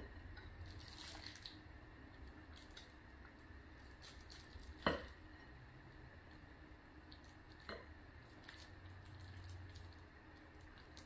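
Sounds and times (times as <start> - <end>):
soft squishing of filling: 0.2 - 11.0.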